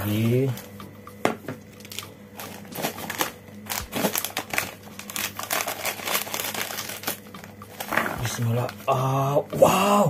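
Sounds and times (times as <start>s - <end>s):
plastic snack packet crinkling: 1.8s - 9.0s
packet tearing open: 1.9s - 7.2s.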